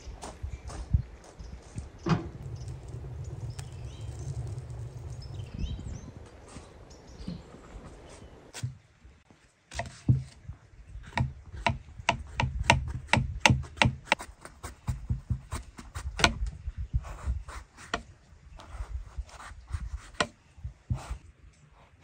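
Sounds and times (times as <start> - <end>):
knife chopping on wooden board: 11.1 - 14.2.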